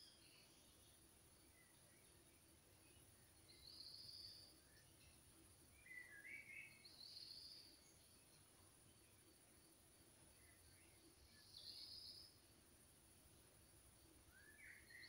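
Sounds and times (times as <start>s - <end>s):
bird chirps: 0.0s - 9.4s, 10.2s - 12.5s, 14.2s - 15.0s
distant bird calls: 0.0s - 9.4s, 14.2s - 15.0s
steady high hiss: 0.0s - 15.0s.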